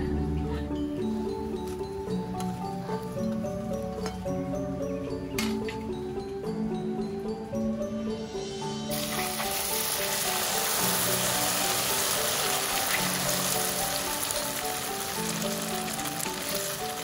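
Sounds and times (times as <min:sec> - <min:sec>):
soft background music: 0:00.0 - 0:17.0
egg sizzling in hot oil: 0:08.9 - 0:17.0.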